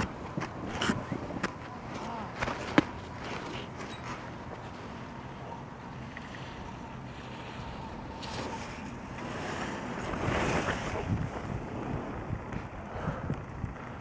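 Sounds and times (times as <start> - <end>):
skis scraping snow: 6.2 - 12.7
wind on microphone: 9.2 - 14.0.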